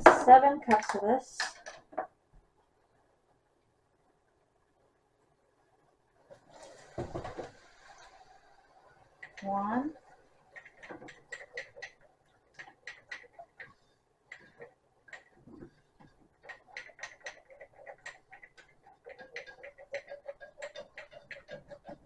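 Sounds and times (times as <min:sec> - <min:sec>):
wire whisk ticking against pot: 0:09.2 - 0:22.0.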